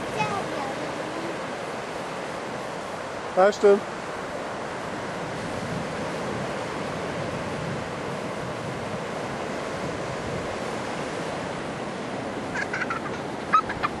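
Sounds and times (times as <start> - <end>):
surf breaking on beach: 0.0 - 14.0
wind rumbling on microphone: 4.6 - 14.0.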